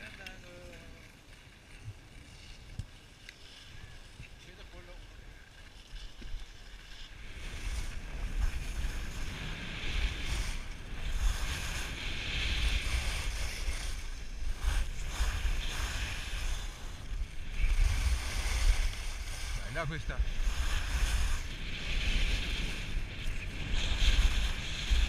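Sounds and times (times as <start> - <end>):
skis scraping over snow: 0.0 - 25.0
wind rumbling on microphone: 0.0 - 25.0.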